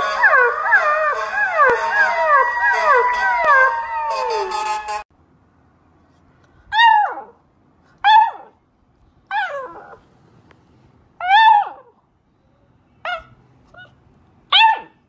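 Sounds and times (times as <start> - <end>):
puppy howl: 0.0 - 5.0, 6.8 - 7.4, 9.3 - 10.0, 11.2 - 11.9
puppy yelping: 6.7 - 7.4, 9.3 - 10.0, 11.2 - 11.9, 13.1 - 15.0.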